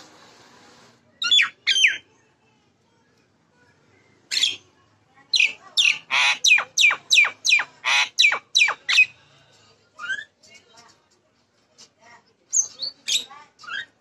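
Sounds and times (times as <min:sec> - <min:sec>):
myna calling: 0:05.3 - 0:09.1.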